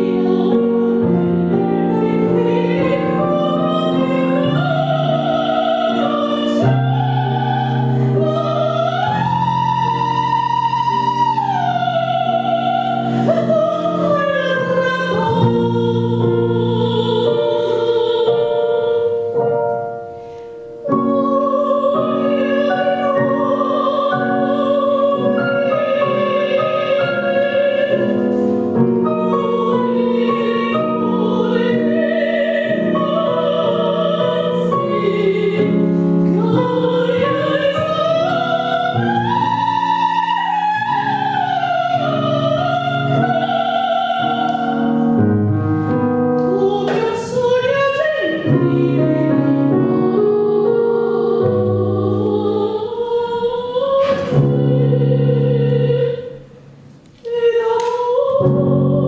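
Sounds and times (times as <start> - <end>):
operatic singing: 0.0 - 19.4, 20.0 - 59.0
piano: 0.0 - 59.0.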